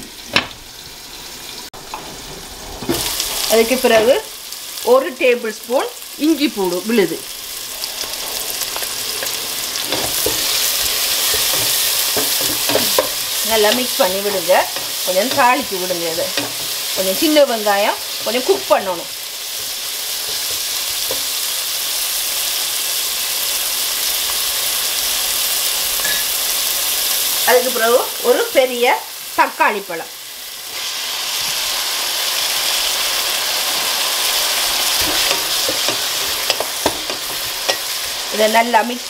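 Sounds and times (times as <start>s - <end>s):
food sizzling in hot oil: 0.0s - 39.0s
wooden spatula stirring: 7.6s - 17.3s.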